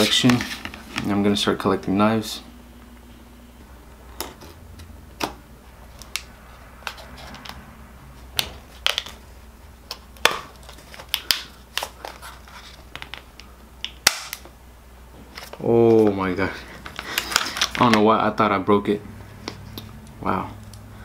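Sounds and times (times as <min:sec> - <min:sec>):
stiff plastic packaging snapping: 0:09.9 - 0:12.2, 0:13.8 - 0:14.5, 0:16.8 - 0:18.1.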